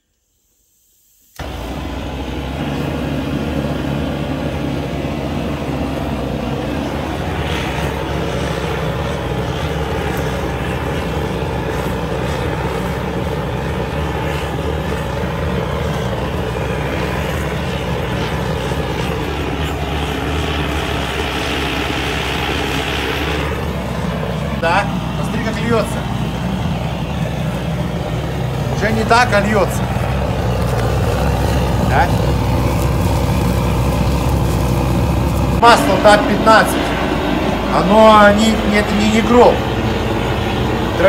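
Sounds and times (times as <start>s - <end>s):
engine idling: 1.4s - 41.0s.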